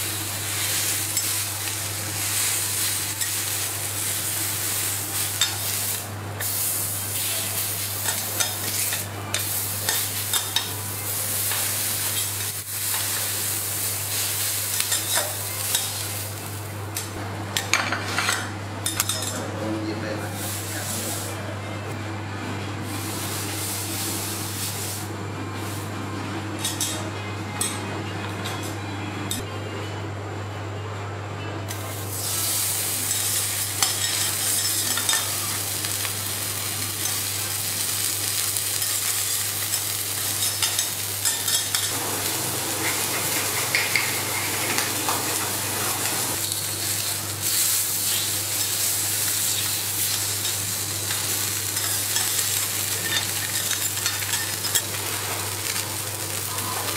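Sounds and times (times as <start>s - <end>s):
fish sizzling on griddle: 0.0s - 16.7s, 32.1s - 56.9s.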